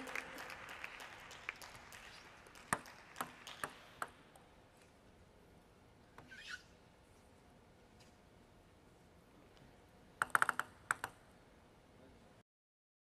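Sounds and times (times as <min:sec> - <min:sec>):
faint squeak: 0:06.2 - 0:06.8
table tennis ball clicking: 0:10.2 - 0:11.2.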